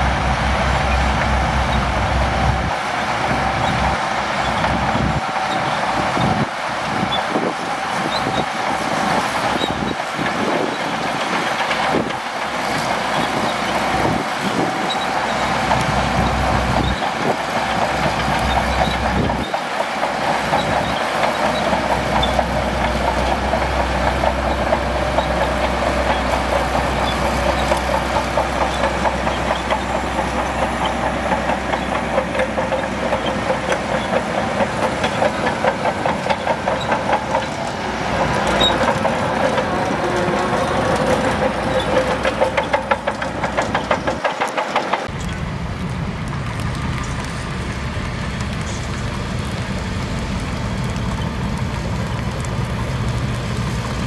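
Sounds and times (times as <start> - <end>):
bulldozer diesel engine under load: 0.0 - 54.0
steel tracks clattering: 0.0 - 54.0.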